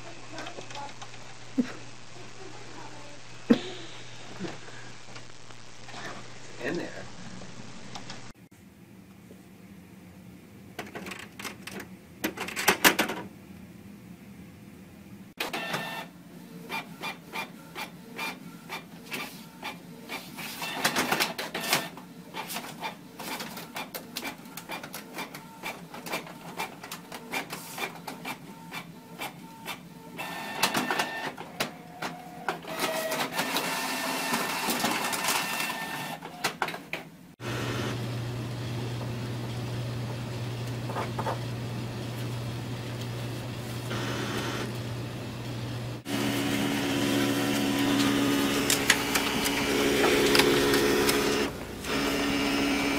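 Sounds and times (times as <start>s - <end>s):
inkjet printer whirring and clicking: 15.4s - 38.0s, 39.7s - 52.9s
printer low steady hum: 28.0s - 36.5s, 37.4s - 52.9s.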